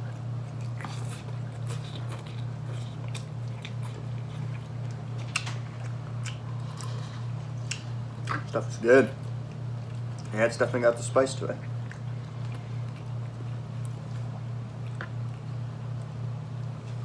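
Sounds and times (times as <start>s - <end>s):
people chewing and slurping noodles: 0.0s - 11.0s
steady low hum: 0.0s - 17.0s.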